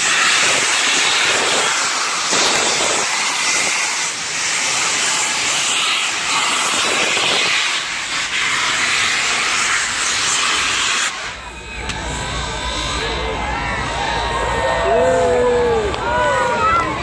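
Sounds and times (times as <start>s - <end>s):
steam locomotive hissing: 0.0s - 11.4s
steam blasting from cylinder cocks: 0.0s - 13.0s.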